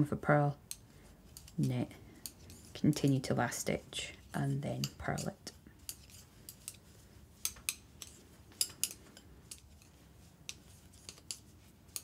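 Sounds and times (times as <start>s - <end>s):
metal knitting needles clicking: 0.6s - 3.3s, 4.7s - 6.8s, 7.4s - 12.0s.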